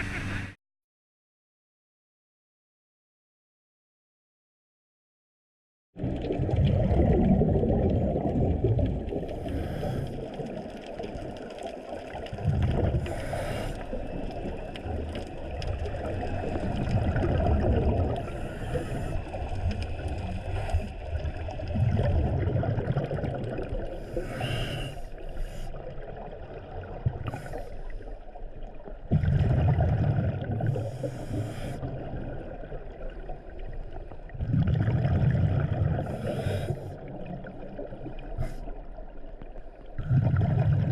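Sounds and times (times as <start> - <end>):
bubbles rushing underwater: 6.0 - 24.2, 25.8 - 40.9
steady underwater hiss: 9.2 - 10.7, 12.9 - 14.8, 18.2 - 21.6, 23.8 - 26.6, 27.2 - 28.4, 30.5 - 32.3, 35.9 - 39.0.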